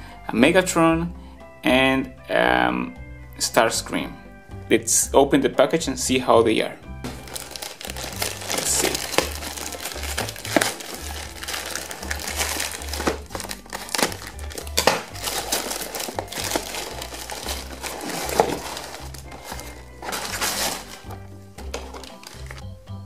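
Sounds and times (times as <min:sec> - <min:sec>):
background music: 0:00.0 - 0:23.0
plastic bag crinkling and tearing: 0:07.1 - 0:21.1, 0:21.7 - 0:22.6.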